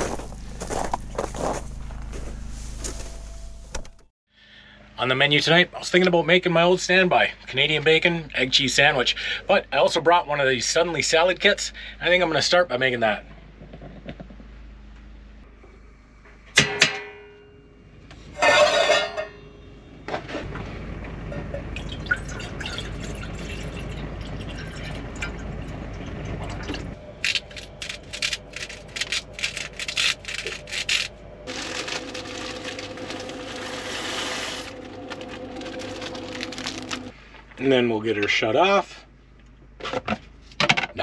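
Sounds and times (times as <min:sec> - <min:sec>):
water pouring into a pot: 0:21.8 - 0:25.6.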